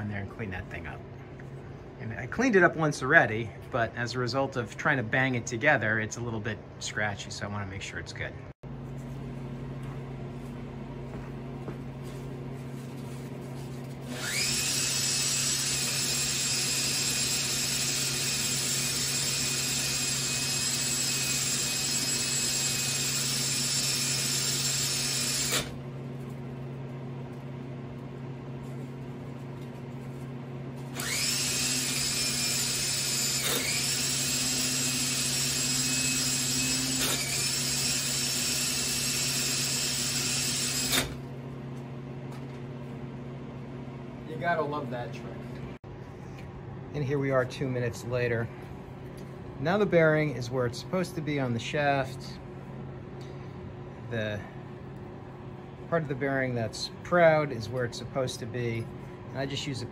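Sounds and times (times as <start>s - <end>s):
electric drill running: 14.1s - 25.8s, 30.9s - 41.2s
sanding motor shaft: 31.0s - 41.0s.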